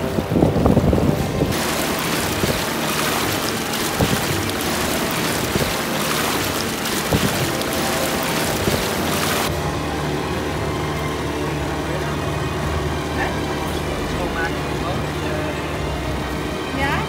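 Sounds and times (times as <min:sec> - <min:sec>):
water rushing and spray: 0:00.0 - 0:09.5
wind on microphone: 0:00.0 - 0:09.5
boat motor humming: 0:00.0 - 0:17.0.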